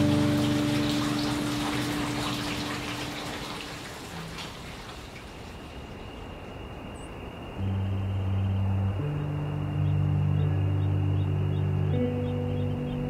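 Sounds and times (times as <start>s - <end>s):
music held notes: 0.0s - 3.3s, 7.6s - 13.0s
rain-like hiss with crackles: 0.0s - 10.6s.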